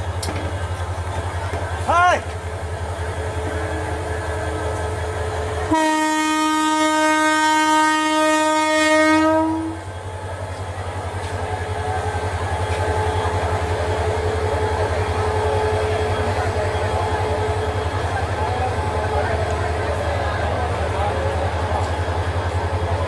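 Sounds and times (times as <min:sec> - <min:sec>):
diesel locomotive engine pulsing: 0:00.0 - 0:23.0
locomotive horn blast: 0:05.6 - 0:09.9.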